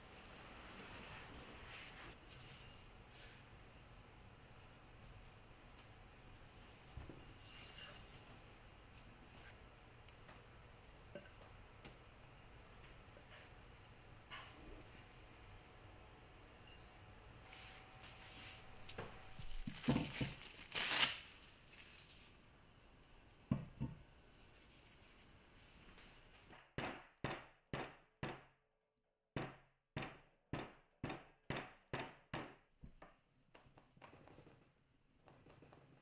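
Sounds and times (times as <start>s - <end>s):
cling wrap crinkling: 19.4s - 22.3s.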